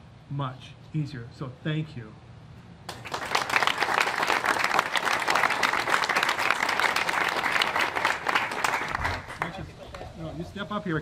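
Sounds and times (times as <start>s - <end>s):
audience applauding: 2.9s - 9.6s.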